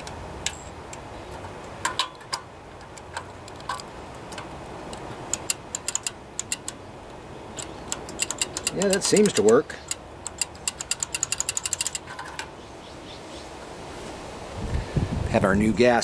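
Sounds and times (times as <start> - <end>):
light metallic clicks: 0.0 - 12.5.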